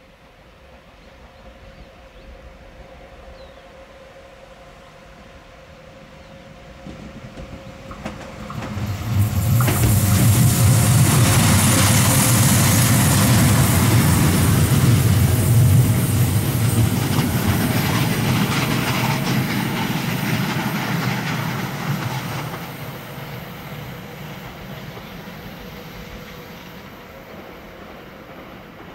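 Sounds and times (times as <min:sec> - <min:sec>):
train wheels rumbling on rails: 0:06.2 - 0:28.9.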